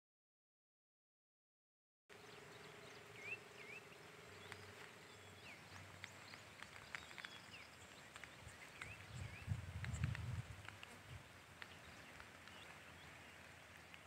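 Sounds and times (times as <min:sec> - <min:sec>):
bird chirps: 0:02.1 - 0:14.0
faint steady hum: 0:02.1 - 0:14.0
light hiss: 0:02.2 - 0:14.0
small clicks: 0:04.4 - 0:14.0.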